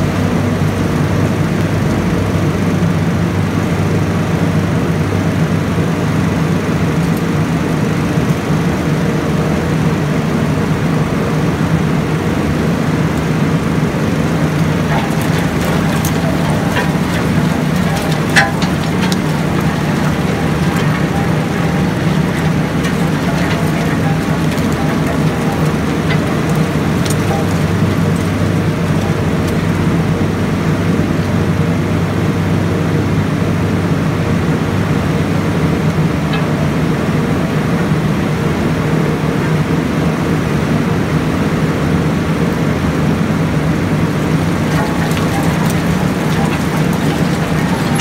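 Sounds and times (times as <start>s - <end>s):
shredder machine drone: 14.1s - 31.0s, 44.2s - 48.0s
wood chips dropping: 14.3s - 30.2s, 44.1s - 48.0s.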